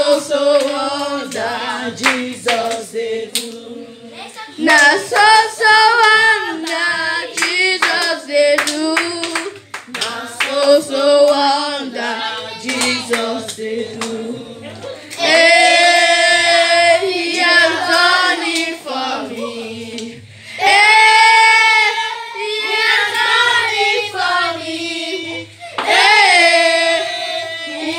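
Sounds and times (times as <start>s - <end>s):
voices singing along: 0.0s - 27.9s
hand claps: 0.1s - 3.6s, 4.7s - 10.6s, 12.6s - 14.2s
girl singing into microphone: 4.0s - 9.7s.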